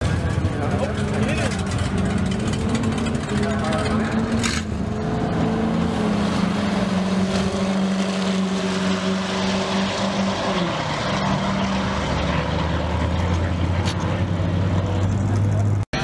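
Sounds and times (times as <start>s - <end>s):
diesel truck engines racing: 0.0s - 16.0s.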